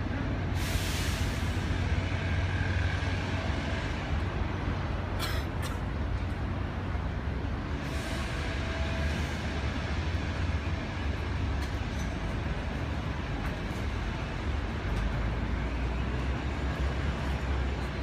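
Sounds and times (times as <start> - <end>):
deep traffic rumble: 0.0 - 18.0.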